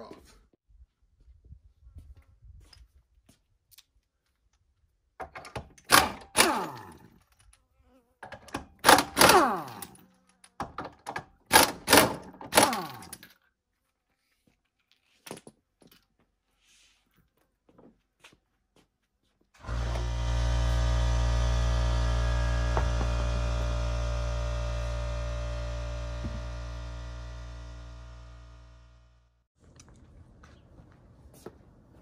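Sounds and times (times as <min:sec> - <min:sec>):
air impact wrench hammering: 0:08.8 - 0:09.9, 0:11.5 - 0:13.0, 0:19.6 - 0:27.7.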